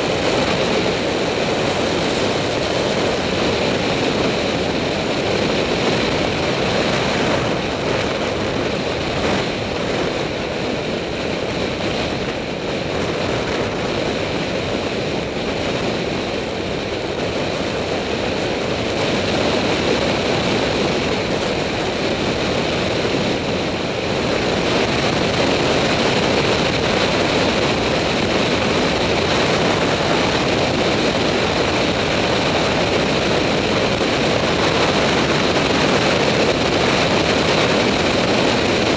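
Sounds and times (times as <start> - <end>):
wind on microphone: 0.0 - 38.9.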